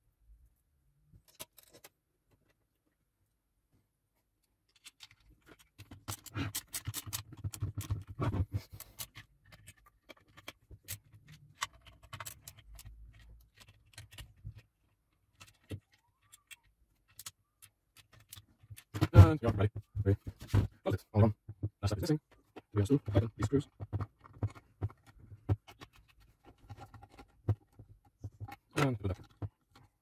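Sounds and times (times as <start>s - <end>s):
parts and tools clicking and rattling: 1.2s - 2.6s, 4.4s - 30.0s.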